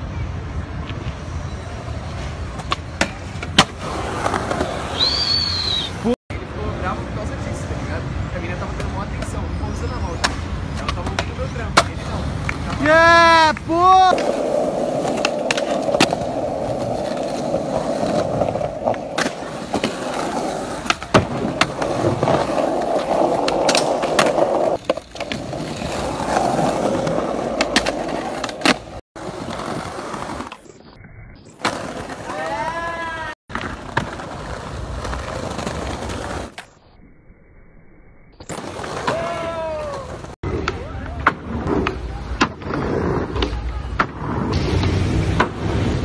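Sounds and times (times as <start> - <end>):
skateboard wheels rolling on concrete: 0.0 - 37.0, 38.4 - 46.0
skateboard scraping along ledge: 14.0 - 30.8.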